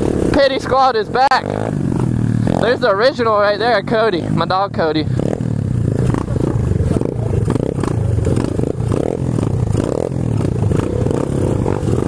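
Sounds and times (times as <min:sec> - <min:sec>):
bikes rattling: 0:00.0 - 0:12.0
pit bike engines at low revs: 0:00.0 - 0:12.0.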